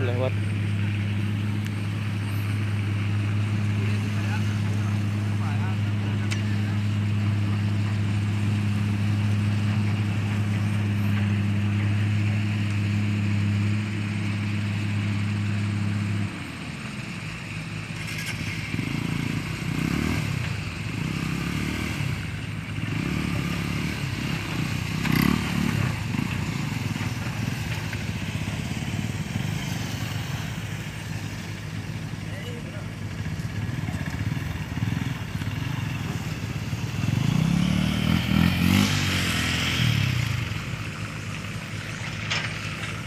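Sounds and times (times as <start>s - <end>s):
steady engine hum: 0.0s - 43.0s
motorcycle engine revving in mud: 17.6s - 43.0s.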